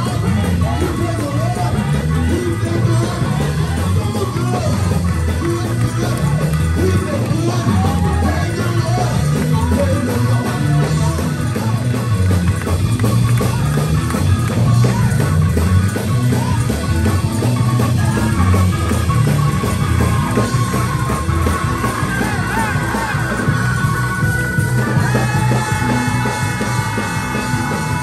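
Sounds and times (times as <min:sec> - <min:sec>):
man singing into a microphone: 0:00.0 - 0:11.8
live worship band music: 0:00.0 - 0:28.0.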